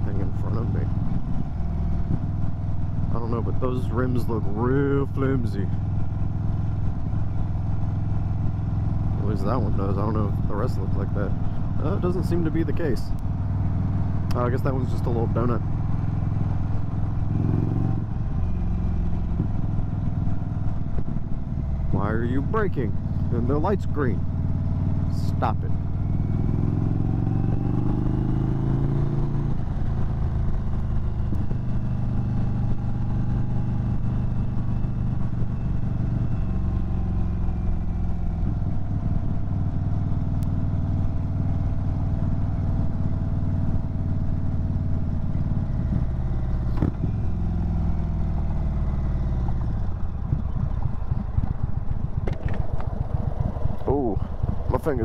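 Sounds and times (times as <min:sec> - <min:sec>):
motorcycle engine running: 0:00.0 - 0:55.0.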